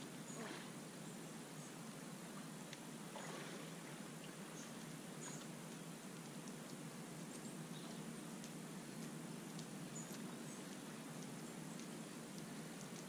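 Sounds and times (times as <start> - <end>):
low hiss: 0.0 - 13.0.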